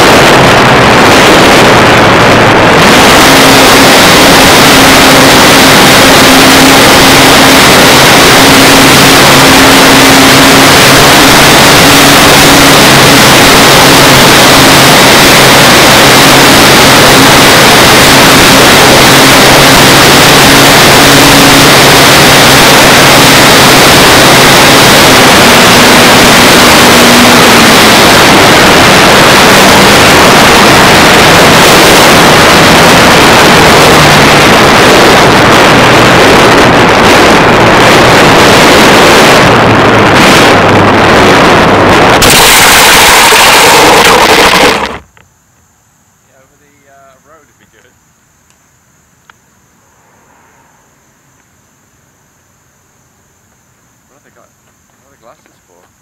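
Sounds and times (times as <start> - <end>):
model plane motor tone: 0.0 - 39.6
wind and propeller noise: 0.0 - 42.3, 43.5 - 45.1.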